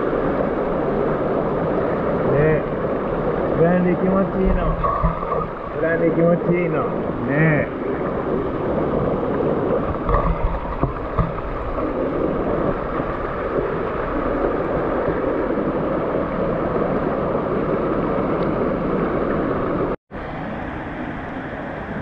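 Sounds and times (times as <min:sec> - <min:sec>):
stream rushing over stones: 0:00.0 - 0:20.7
low bumps: 0:03.5 - 0:08.3, 0:08.9 - 0:13.8.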